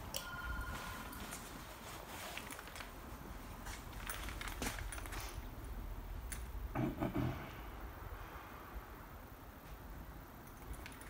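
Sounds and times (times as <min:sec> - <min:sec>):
clothing rustle: 0:00.5 - 0:05.6.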